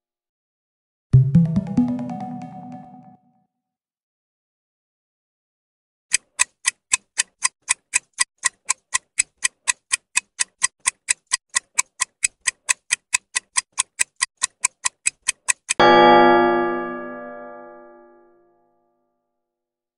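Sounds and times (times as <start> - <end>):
clock ticking: 6.1 - 15.9.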